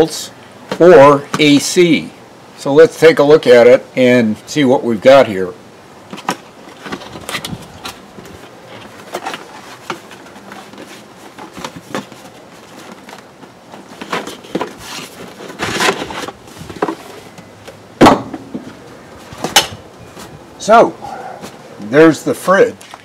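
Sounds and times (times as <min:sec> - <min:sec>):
cardboard scraping: 0:06.1 - 0:17.4
cardboard flaps rustling: 0:06.1 - 0:20.4
handling knocks: 0:18.0 - 0:19.8.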